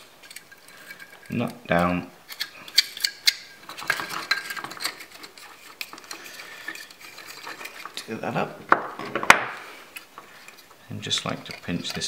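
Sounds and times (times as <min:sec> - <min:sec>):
small metal parts clinking: 0:00.0 - 0:08.1.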